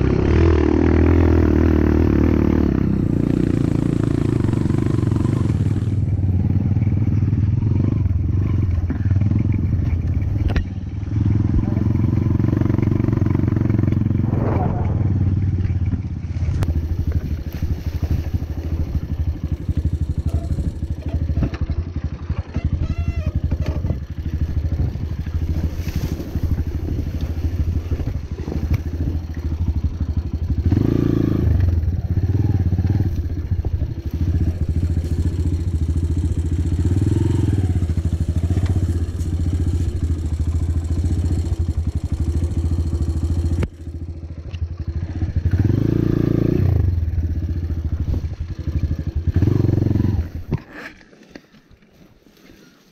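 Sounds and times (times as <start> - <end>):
motorcycle engine revving: 0.0 - 51.0.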